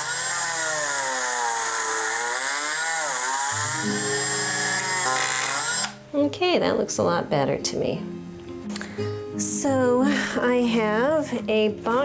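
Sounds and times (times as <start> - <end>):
rotary tool wire brush on metal: 0.0 - 6.0.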